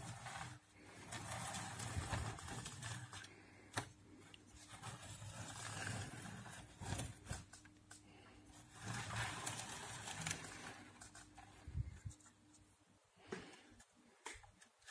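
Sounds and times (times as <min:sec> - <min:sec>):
plastic scraping and rattling: 0:00.0 - 0:12.4.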